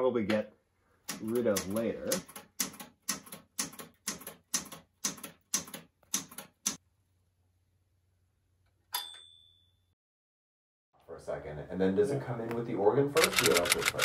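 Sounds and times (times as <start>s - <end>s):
typewriter keys clacking: 13.2s - 14.0s.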